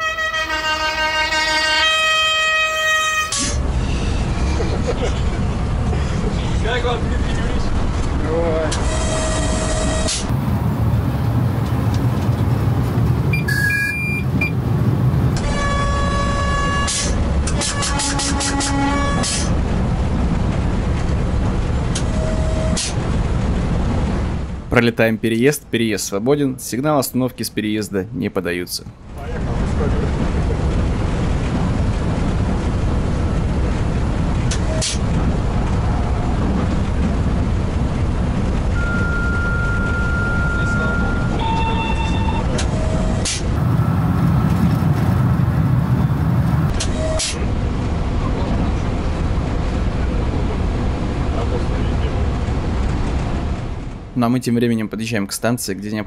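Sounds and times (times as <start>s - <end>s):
locomotive cab low rumble: 0.0s - 55.9s
short electronic beeps: 13.3s - 14.6s, 38.8s - 42.5s
steady high tone: 38.8s - 42.6s.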